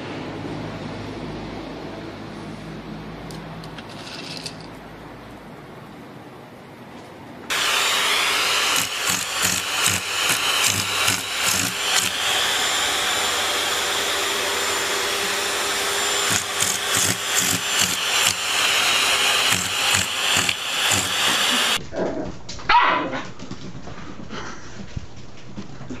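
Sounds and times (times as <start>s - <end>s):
loud machine whir: 7.5s - 21.8s.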